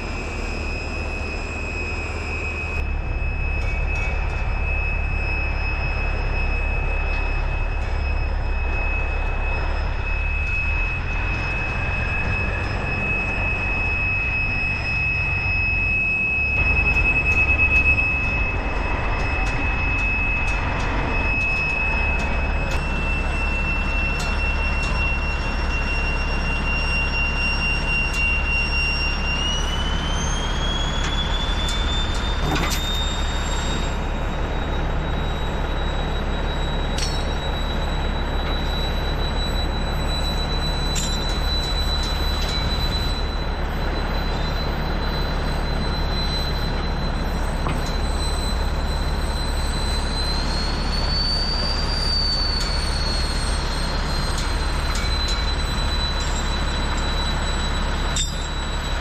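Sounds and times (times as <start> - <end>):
bulldozer diesel engine rumbling: 0.0 - 59.0
bulldozer tracks clanking: 0.0 - 59.0
high engine whine: 0.0 - 59.0.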